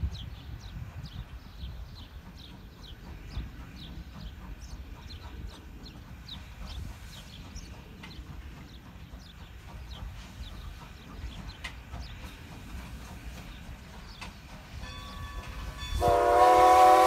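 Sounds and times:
birds chirping: 0.0s - 15.8s.

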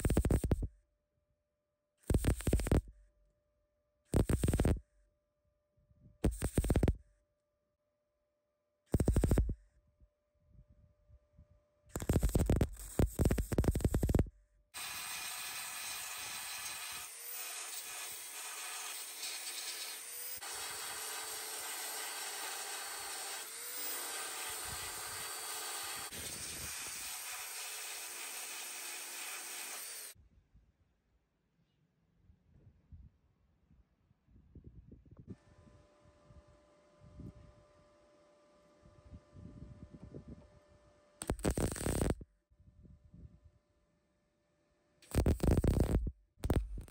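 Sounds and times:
welder crackling: 2.0s - 2.8s, 4.1s - 4.8s, 6.2s - 6.9s, 11.9s - 14.2s, 14.8s - 30.2s, 41.2s - 42.2s, 45.0s - 46.9s
belt sander grinding: 14.8s - 30.2s.

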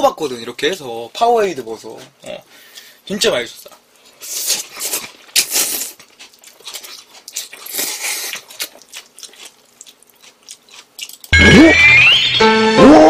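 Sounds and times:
slurping and chewing noodles: 4.0s - 11.4s.

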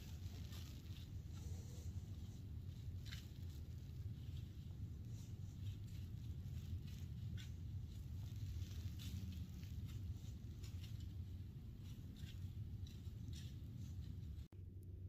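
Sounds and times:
deer walking on dry leaves: 0.0s - 14.5s.

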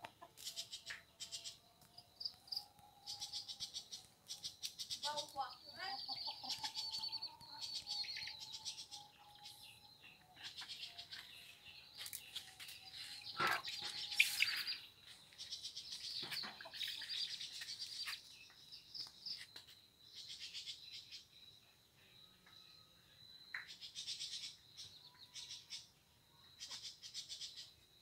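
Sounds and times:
small birds chirping: 0.0s - 28.0s.

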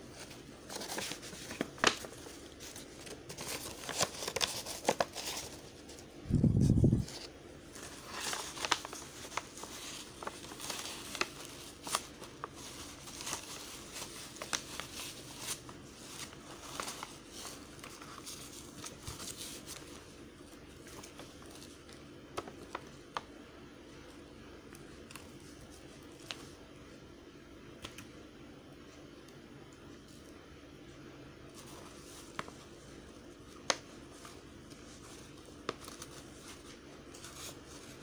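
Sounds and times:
paper rustling and crinkling: 0.0s - 23.3s, 31.5s - 38.0s.

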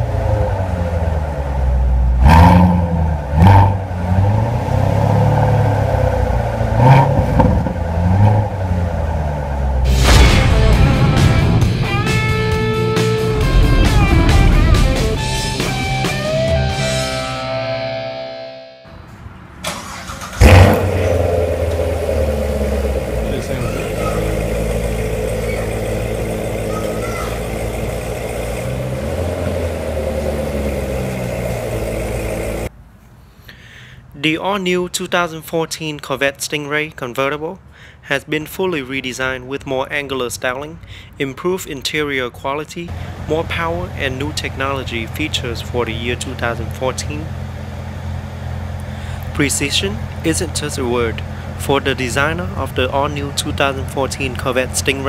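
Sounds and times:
car engine idling: 0.0s - 17.4s, 19.6s - 32.7s, 42.9s - 55.0s
engine revving: 0.0s - 17.9s, 19.6s - 32.7s.

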